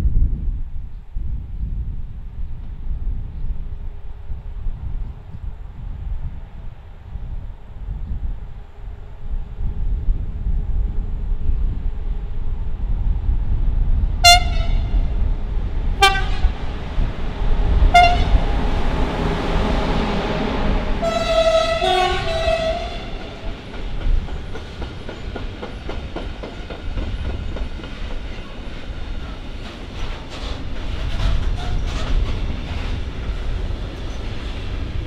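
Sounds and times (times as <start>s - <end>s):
locomotive rumbling past: 3.4s - 35.0s
locomotive horn toots: 14.2s - 15.1s, 16.0s - 16.6s, 17.9s - 18.5s, 20.8s - 23.5s.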